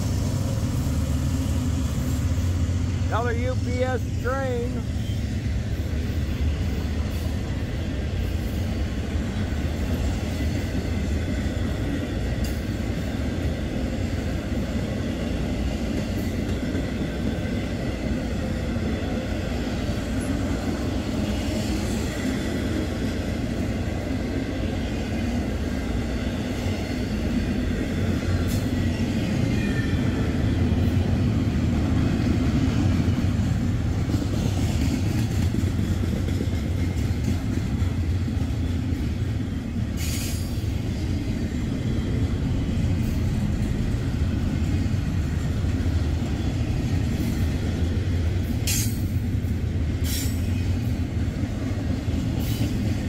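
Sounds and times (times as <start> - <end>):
freight train rumbling on rails: 0.0 - 53.0.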